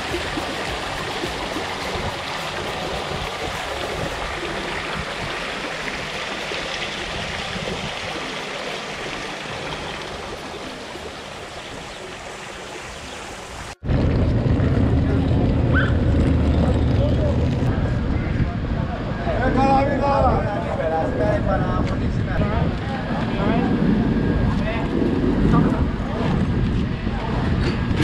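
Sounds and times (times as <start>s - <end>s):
running water in a pool: 0.0s - 13.8s.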